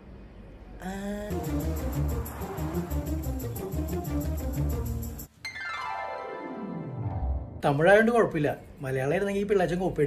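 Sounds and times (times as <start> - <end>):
background music: 1.2 - 8.0
synthesizer tone gliding downward: 1.3 - 7.6.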